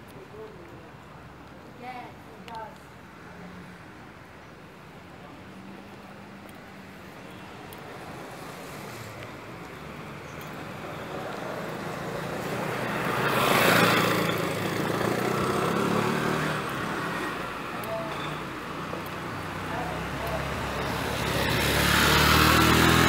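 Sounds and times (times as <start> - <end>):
car passing by: 8.0 - 23.0.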